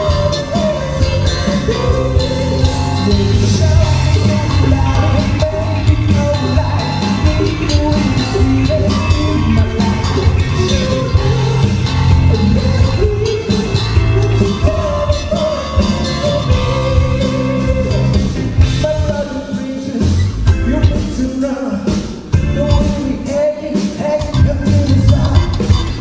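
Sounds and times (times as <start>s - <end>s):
drum kit: 0.0s - 26.0s
electric guitar: 0.0s - 26.0s
keyboard: 0.0s - 26.0s
lead singer: 0.0s - 26.0s.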